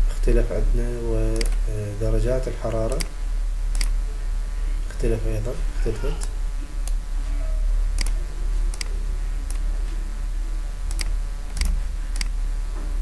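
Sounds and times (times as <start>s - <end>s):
low electrical hum: 0.0s - 13.0s
computer mouse clicking: 3.7s - 4.0s, 8.0s - 9.6s, 10.9s - 12.3s.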